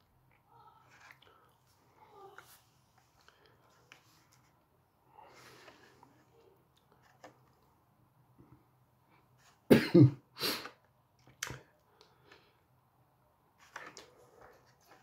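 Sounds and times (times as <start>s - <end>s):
person coughing: 9.7s - 10.7s.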